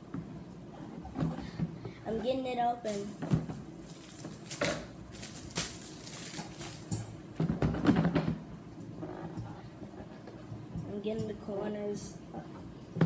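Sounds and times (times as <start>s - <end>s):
plastic shrink wrap crinkling: 3.8s - 6.9s.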